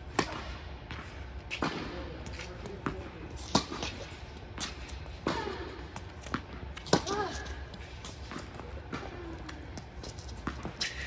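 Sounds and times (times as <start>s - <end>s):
tennis ball struck by rackets: 0.1s - 7.3s
tennis ball bouncing on hard court: 0.1s - 11.0s.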